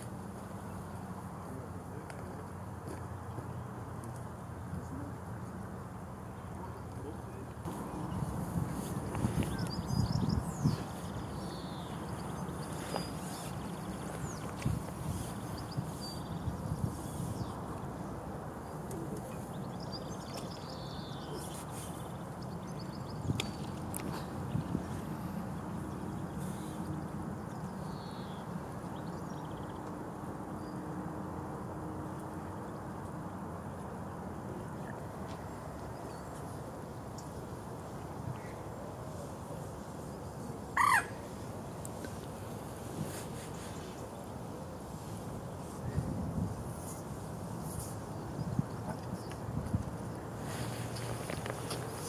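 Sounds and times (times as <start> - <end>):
small birds chirping and trilling: 6.7 - 18.0
loud bird call: 40.8 - 41.3.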